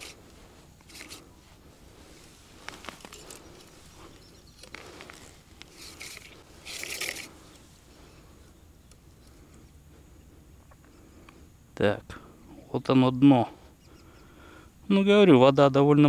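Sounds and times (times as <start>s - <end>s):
rustling of gloves and clothing: 0.0s - 11.0s.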